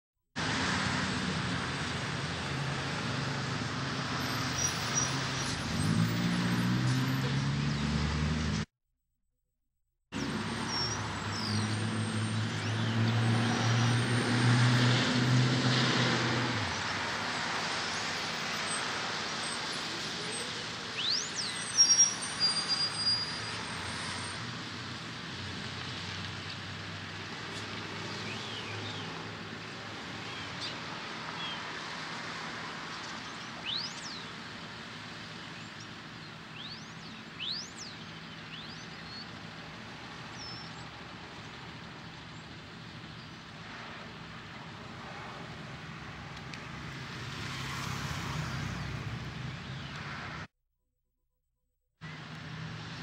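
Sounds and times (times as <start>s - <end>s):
traffic hiss: 16.6s - 50.5s.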